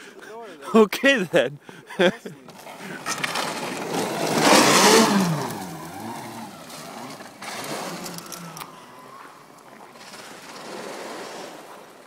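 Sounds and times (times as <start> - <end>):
snowmobile rushing through snow: 3.2 - 8.2, 10.0 - 11.9.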